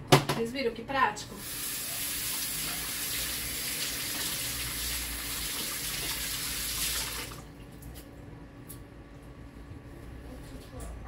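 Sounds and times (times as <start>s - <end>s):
tap water running into sink: 1.4s - 7.5s.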